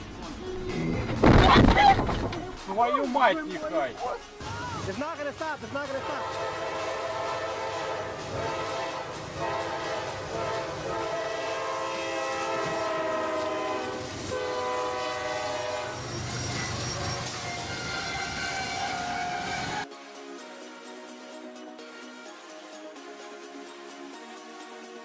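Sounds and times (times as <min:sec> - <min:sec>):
passing train rumble: 0:02.2 - 0:19.9
locomotive air horn blasts: 0:05.9 - 0:19.8.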